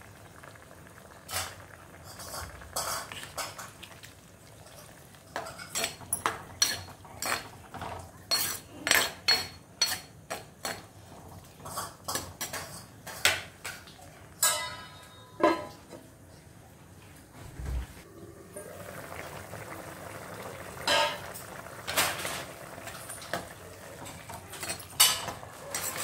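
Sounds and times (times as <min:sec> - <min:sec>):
spoon scraping and clinking in pot: 0:05.3 - 0:07.5, 0:08.3 - 0:10.8, 0:24.0 - 0:26.0
ringing metal clink: 0:14.4 - 0:15.6.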